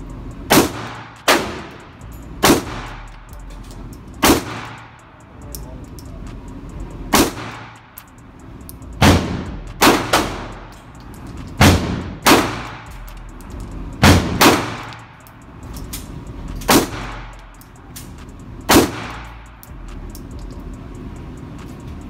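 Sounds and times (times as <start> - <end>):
pistol shots echoing indoors: 0.5 - 3.2, 4.2 - 5.0, 7.1 - 8.0, 9.0 - 10.9, 11.6 - 13.1, 14.0 - 15.2, 18.7 - 19.4.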